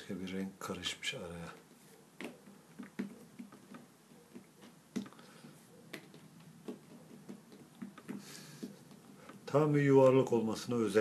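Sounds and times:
fingers tapping play dough on tile: 0:02.2 - 0:09.5.

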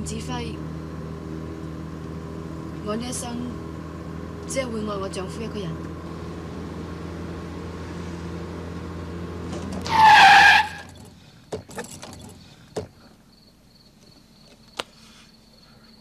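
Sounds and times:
car engine running: 0:00.0 - 0:14.8
tyre screech: 0:09.5 - 0:11.1
crickets chirping: 0:11.0 - 0:16.0.

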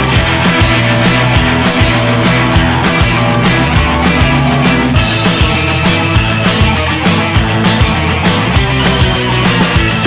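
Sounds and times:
driving drum beat: 0:00.0 - 0:10.0
loud rock music: 0:00.0 - 0:10.0.

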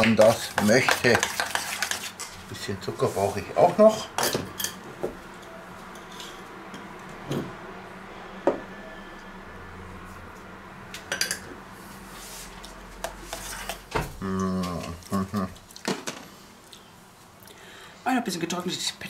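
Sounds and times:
spoons clinking on metal bowls: 0:00.0 - 0:02.4
faint steady hum: 0:00.0 - 0:19.0.

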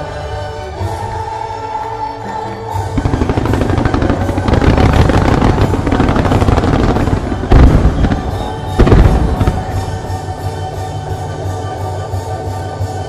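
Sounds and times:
music: 0:00.0 - 0:13.0
fireworks crackling: 0:02.6 - 0:13.0
loud firework booms: 0:03.0 - 0:10.4.

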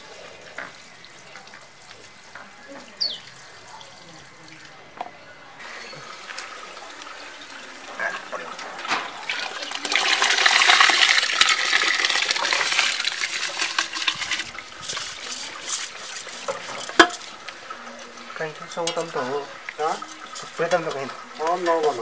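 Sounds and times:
water pouring into metal basin: 0:05.6 - 0:22.0.

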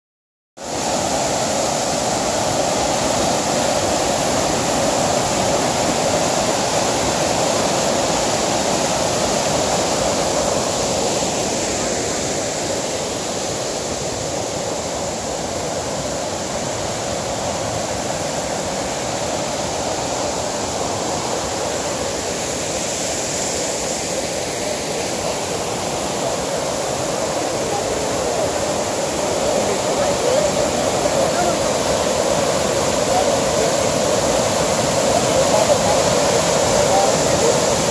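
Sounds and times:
waterfall rushing: 0:00.6 - 0:37.9.

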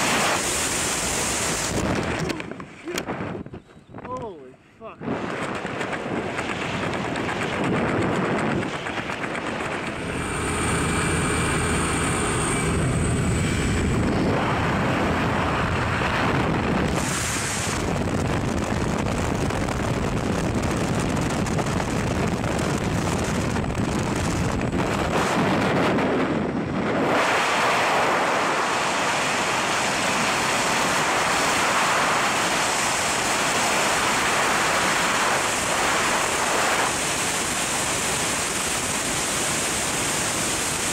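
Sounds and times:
plane engine and propeller: 0:00.0 - 0:40.9
wind rushing on microphone: 0:00.0 - 0:40.9.

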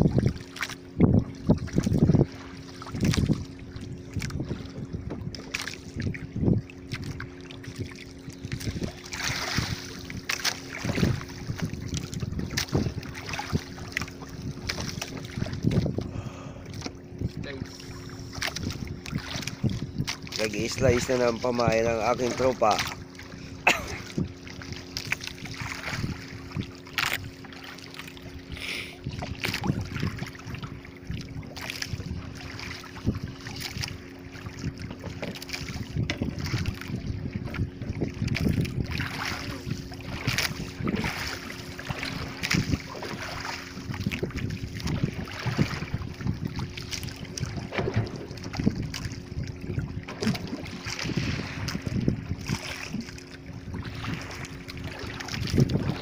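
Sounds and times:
wind on microphone: 0:00.0 - 0:27.5, 0:28.2 - 0:56.0
steady low hum: 0:00.0 - 0:56.0
water slapping against boat hull: 0:00.0 - 0:56.0.

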